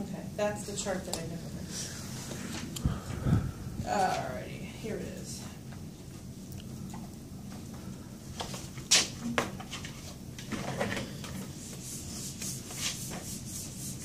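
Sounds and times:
eraser rubbing on whiteboard: 11.6 - 14.0.

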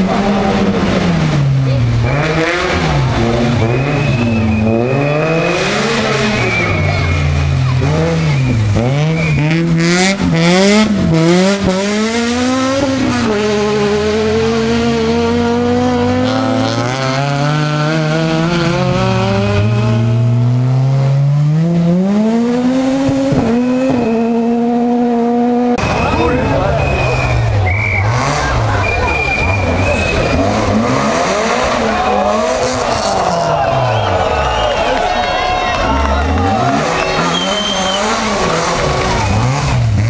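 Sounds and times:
rally car engine revving: 0.0 - 40.0
tyre squeal: 25.8 - 30.7, 36.7 - 39.4.

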